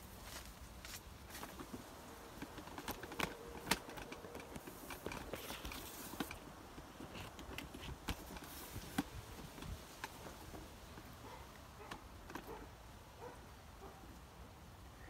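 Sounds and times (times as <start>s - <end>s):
faint footsteps: 0.0s - 12.6s
rustling among plants: 0.0s - 13.4s
light clicks and crackles: 0.3s - 12.7s.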